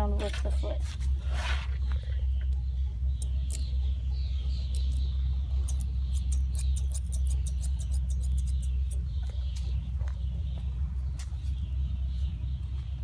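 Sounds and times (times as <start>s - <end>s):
low rumble: 0.0s - 13.0s
shears snipping hair: 5.7s - 8.7s.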